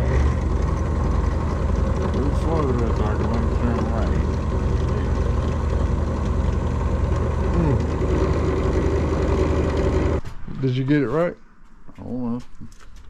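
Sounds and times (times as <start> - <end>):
power drill boring through metal: 0.0 - 10.2.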